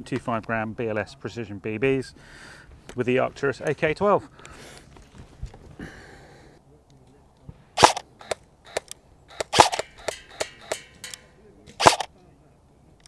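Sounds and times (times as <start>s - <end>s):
airsoft gun firing single shots: 7.8s - 12.1s.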